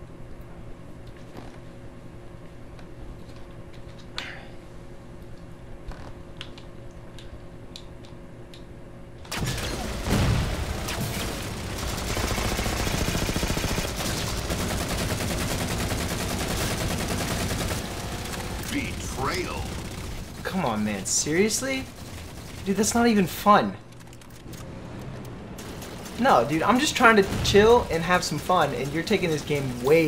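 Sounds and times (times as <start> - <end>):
low steady hum: 0.0 - 30.0
heavy low blast: 9.3 - 14.8, 24.5 - 30.0
video game gunfire: 9.3 - 30.0.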